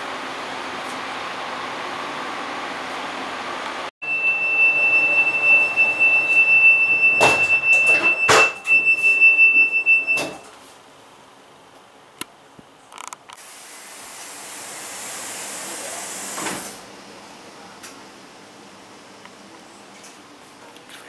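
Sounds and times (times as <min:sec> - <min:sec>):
high-pitched warning beep: 0:04.0 - 0:10.5
train doors thudding shut: 0:06.2 - 0:10.5.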